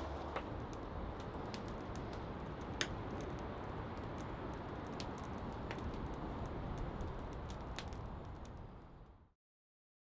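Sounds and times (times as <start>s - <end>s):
wood fire crackling: 0.0s - 9.4s.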